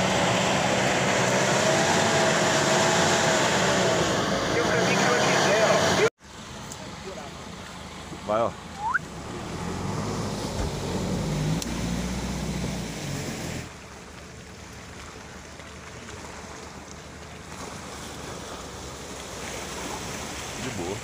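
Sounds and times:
car engine revving: 0:00.0 - 0:06.1, 0:08.8 - 0:13.7.

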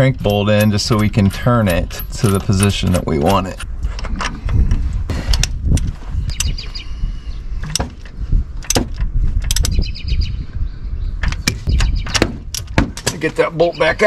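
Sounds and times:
steady low rumble: 0:00.0 - 0:14.0
metallic clicks and clanks: 0:00.3 - 0:06.5, 0:07.6 - 0:09.8
ringing ratchet sounds: 0:00.4 - 0:03.5.

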